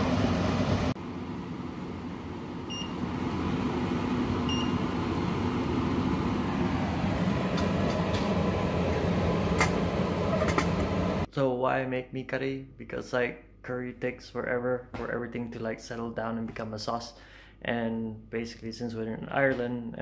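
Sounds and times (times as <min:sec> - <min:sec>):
steady low hum: 0:00.0 - 0:11.4
hob touch control beeps: 0:04.5 - 0:04.8.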